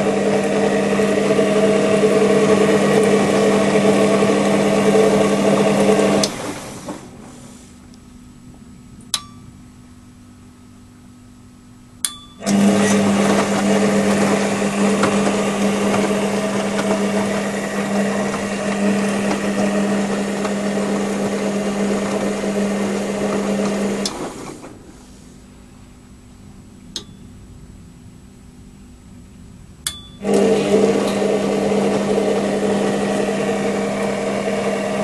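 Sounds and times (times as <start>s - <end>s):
washing machine motor humming: 0.0s - 28.6s, 29.5s - 35.0s
relay clicks: 12.0s - 25.0s, 29.8s - 31.3s.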